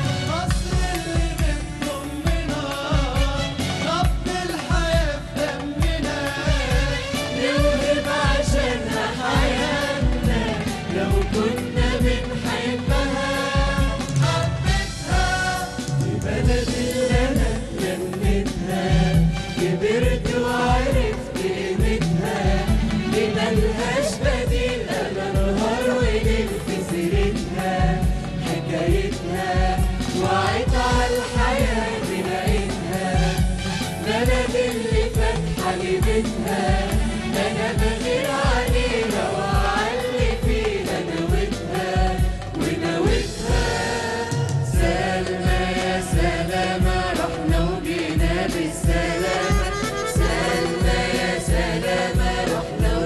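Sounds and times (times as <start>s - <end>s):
mixed choir singing in harmony: 0.0s - 53.0s
low drum thumps: 7.6s - 44.0s.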